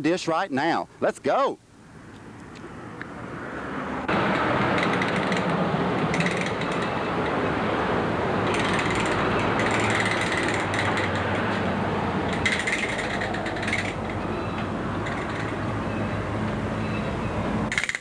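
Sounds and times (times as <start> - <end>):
outdoor background noise: 0.0 - 18.0
rapid rattling clicks: 4.7 - 6.9, 8.5 - 11.6, 12.3 - 14.2, 15.0 - 15.6, 17.7 - 18.0.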